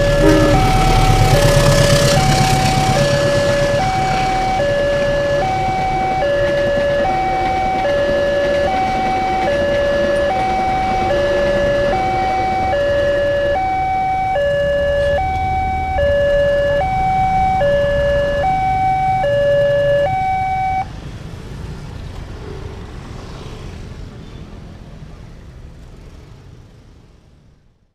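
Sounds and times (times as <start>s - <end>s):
two-tone crossing alarm: 0.0s - 20.9s
road traffic noise: 0.0s - 27.9s.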